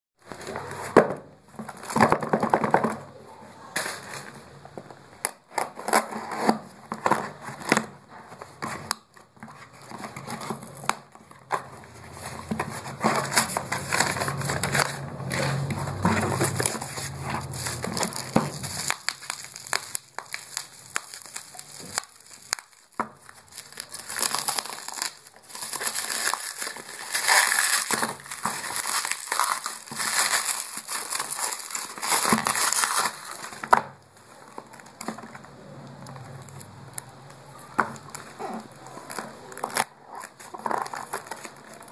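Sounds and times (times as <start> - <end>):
packaging rustling and crinkling: 0.2 - 41.9
small crackles and clicks: 8.6 - 41.9.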